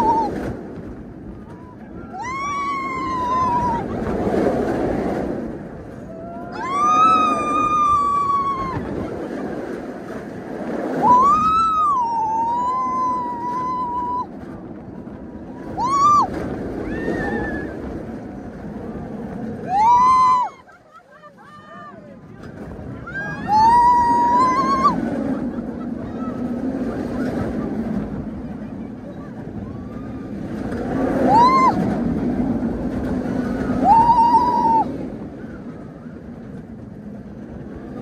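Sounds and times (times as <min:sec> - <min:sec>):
roller coaster train rumbling: 0:00.0 - 0:38.0
riders screaming: 0:01.6 - 0:04.3, 0:06.0 - 0:09.2, 0:11.0 - 0:14.3, 0:15.6 - 0:18.2, 0:19.6 - 0:22.0, 0:23.0 - 0:25.4, 0:29.6 - 0:32.2, 0:33.4 - 0:35.8.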